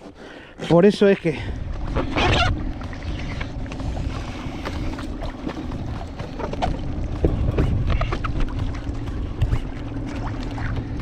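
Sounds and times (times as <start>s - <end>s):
water against kayak hull: 0.0s - 11.0s
wind buffeting microphone: 1.4s - 11.0s.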